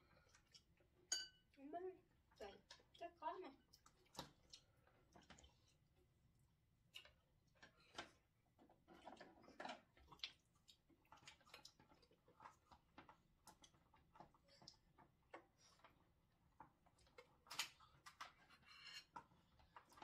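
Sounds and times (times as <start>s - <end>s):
chopsticks tapping dishes: 1.1s - 1.4s.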